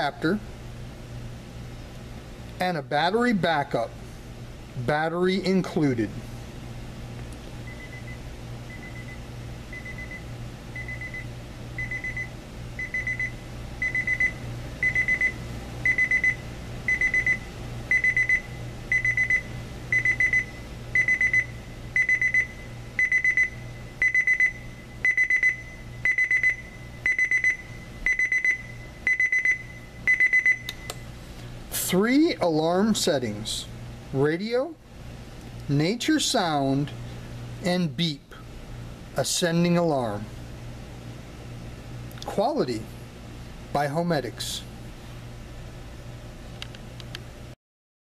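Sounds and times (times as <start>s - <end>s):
alarm clock beeping: 11.8s - 30.7s.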